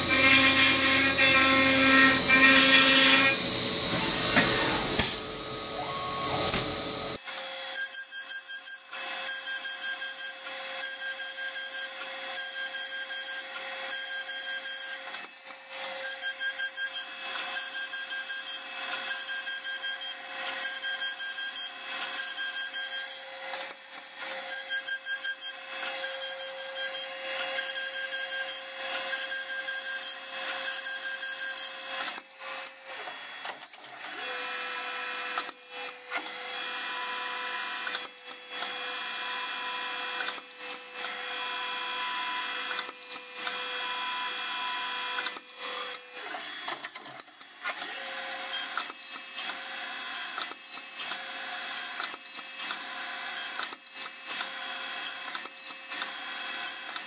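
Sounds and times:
end mill cutting metal: 0.0 - 7.2.

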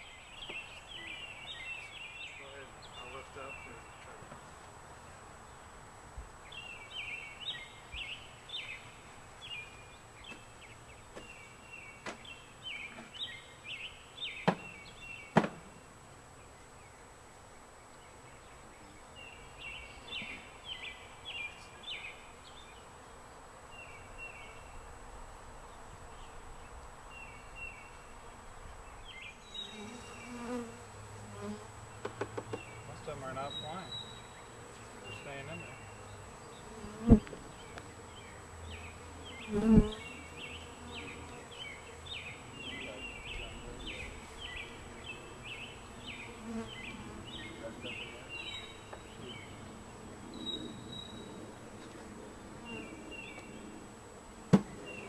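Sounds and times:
sharp knocks: 14.4 - 14.7, 15.3 - 15.6
bees buzzing: 29.1 - 50.3.

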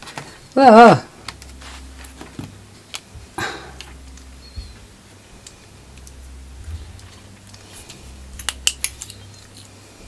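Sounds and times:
faint low hum: 0.0 - 10.0
small metallic tool clicks: 8.4 - 9.7.

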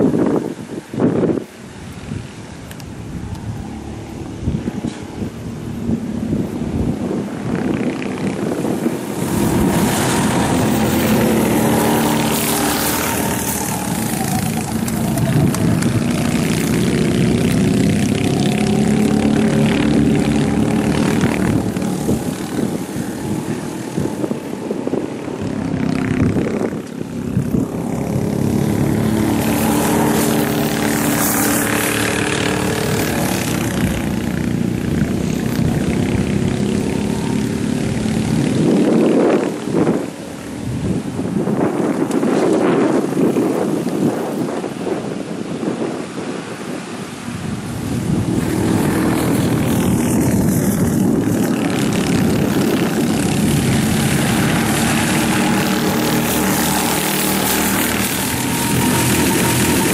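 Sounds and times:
go-kart engines passing by: 0.0 - 59.9.

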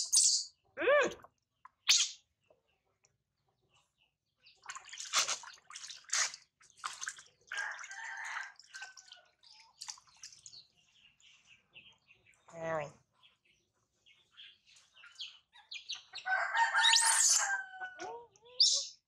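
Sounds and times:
water splashing and trickling: 4.4 - 11.0
water dripping into tub: 4.6 - 10.6.

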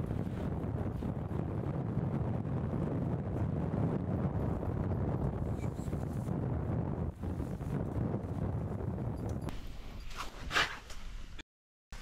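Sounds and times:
wind buffeting microphone: 0.0 - 9.6.

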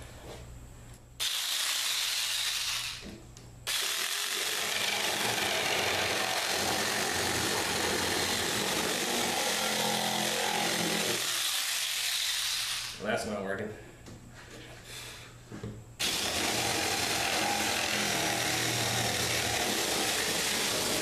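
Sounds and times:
handheld power saw cutting wood: 1.2 - 3.0, 3.7 - 13.0, 16.0 - 21.0.

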